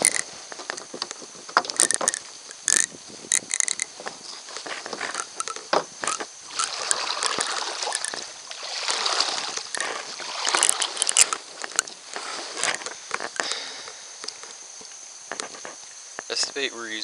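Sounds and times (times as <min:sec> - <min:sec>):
handling clicks and knocks: 0:00.0 - 0:08.3, 0:09.5 - 0:13.6
water sloshing around kayak: 0:04.9 - 0:13.4.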